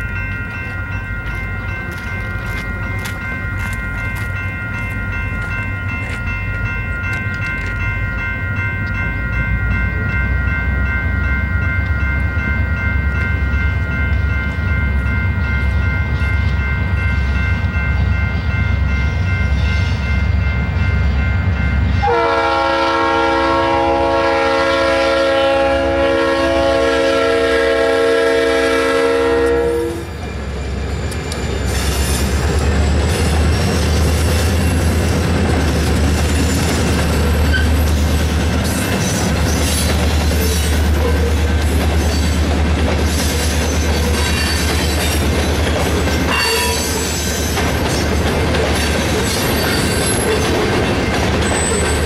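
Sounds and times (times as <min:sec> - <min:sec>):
crossing bells ringing: 0:00.0 - 0:52.0
diesel locomotives rumbling: 0:00.0 - 0:52.0
locomotive horn blast: 0:22.0 - 0:30.1, 0:46.3 - 0:47.0.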